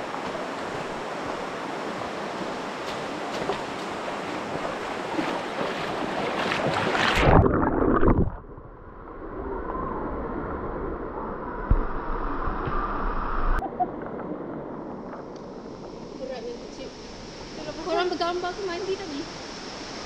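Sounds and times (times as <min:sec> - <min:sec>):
river water rushing: 0:00.0 - 0:08.2.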